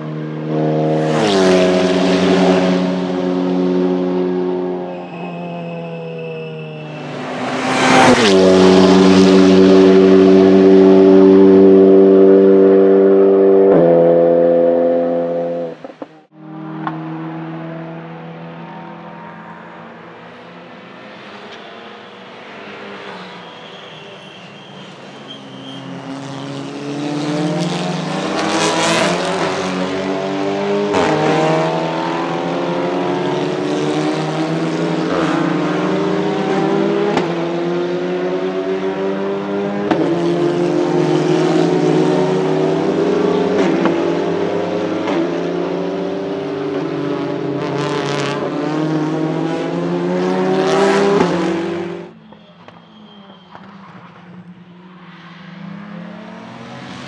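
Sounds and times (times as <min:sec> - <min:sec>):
race cars accelerating: 0:00.0 - 0:57.0.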